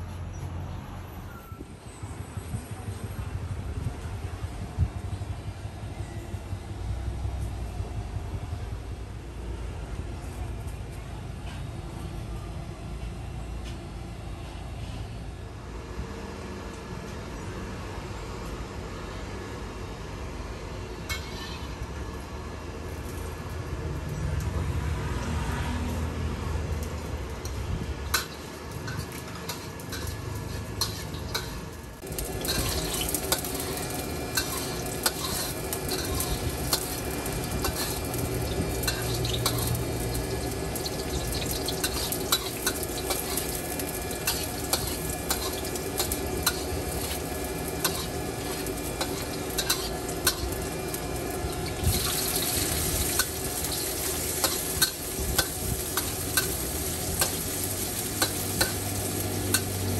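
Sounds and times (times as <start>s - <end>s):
metal spatula clanking on wok: 21.1s - 21.7s, 28.2s - 31.6s, 32.2s - 50.6s, 53.0s - 59.9s
noodles sizzling in a wok: 26.1s - 59.9s.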